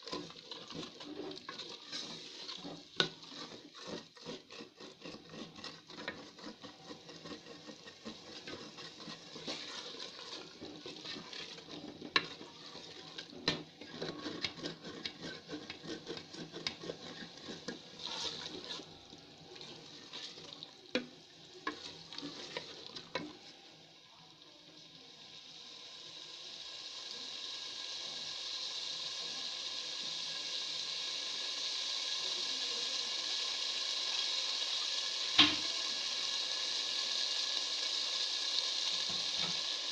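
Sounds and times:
wooden spoon scraping metal pot: 0.0 - 23.5, 39.0 - 39.7
curry sizzling hiss: 0.0 - 39.9.

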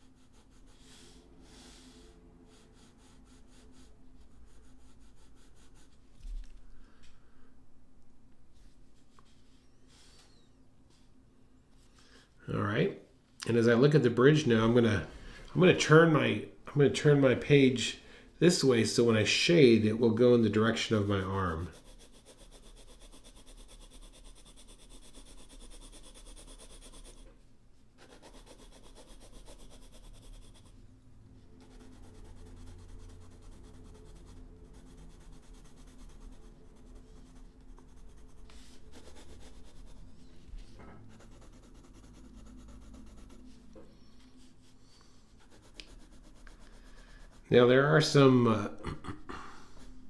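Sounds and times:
pencil scratching on paper: 0.0 - 6.1, 20.6 - 27.3, 28.0 - 30.8, 31.5 - 40.4, 41.0 - 48.2.

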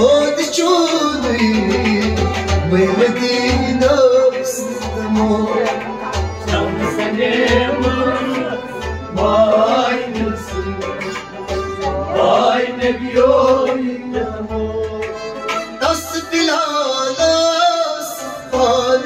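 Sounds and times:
person singing devotional song: 0.0 - 19.0
deep drum beat: 4.8 - 15.2.

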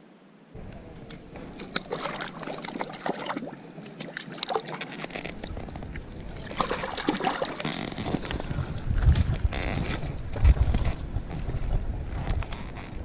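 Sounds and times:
shallow water splashing and sloshing: 1.2 - 8.8.

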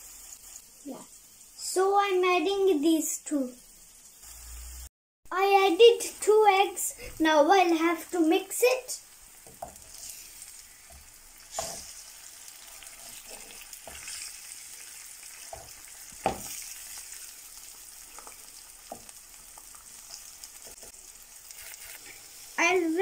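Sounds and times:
eggs and onions sizzling: 0.0 - 23.0
wooden spatula scraping: 9.5 - 14.5, 20.6 - 22.3
spatula knocking against pan: 15.5 - 16.6.

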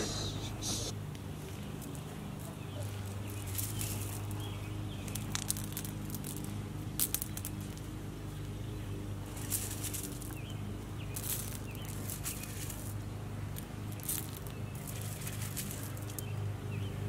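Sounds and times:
steady low hum: 0.0 - 17.0
pebbles clattering: 2.8 - 4.4, 5.0 - 7.9, 9.3 - 10.4, 11.1 - 16.3.

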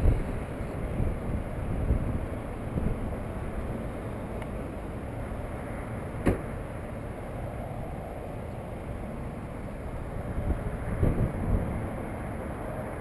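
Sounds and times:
wind on microphone: 0.0 - 3.8, 7.0 - 13.0
passing road traffic: 0.0 - 13.0.

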